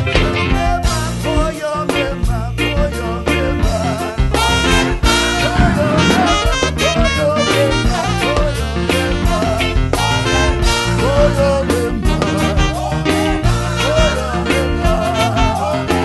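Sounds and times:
gospel band music: 0:00.0 - 0:16.0
man singing into a microphone: 0:00.0 - 0:16.0
saxophone: 0:03.7 - 0:16.0.

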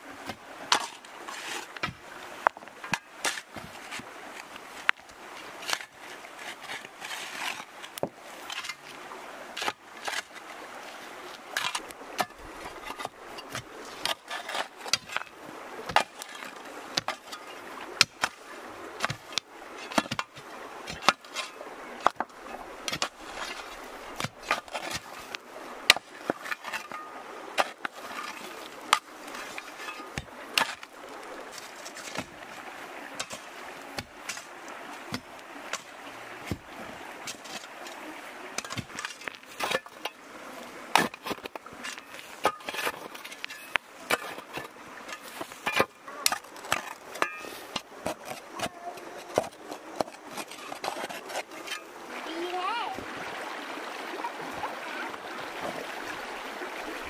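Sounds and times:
metal blades striking earth and rocks: 0:00.2 - 0:04.0, 0:05.6 - 0:08.9, 0:09.6 - 0:10.4, 0:11.5 - 0:15.3, 0:15.9 - 0:18.4, 0:19.0 - 0:30.9, 0:31.5 - 0:32.4, 0:33.1 - 0:37.9, 0:38.6 - 0:40.2, 0:40.9 - 0:48.8
tools scraping soil: 0:00.2 - 0:52.6.

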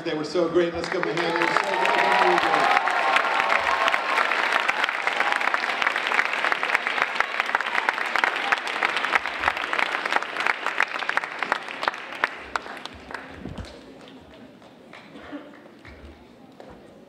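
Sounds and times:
children applauding: 0:00.8 - 0:16.0.

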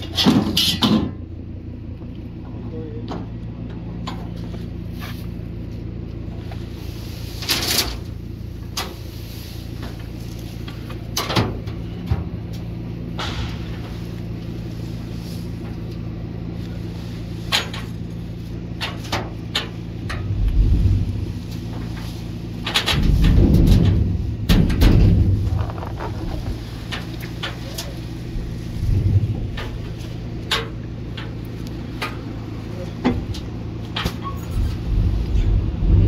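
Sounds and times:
pitchfork scraping metal trailer bed: 0:00.0 - 0:01.2, 0:06.6 - 0:12.0, 0:16.6 - 0:31.4, 0:33.2 - 0:36.0
engine idling: 0:00.0 - 0:36.0
heavy low thump: 0:22.9 - 0:26.6.

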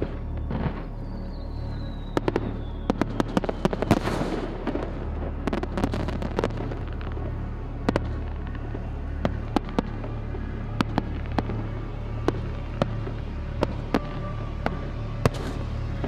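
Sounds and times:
fireworks bursting and crackling: 0:00.0 - 0:16.0.

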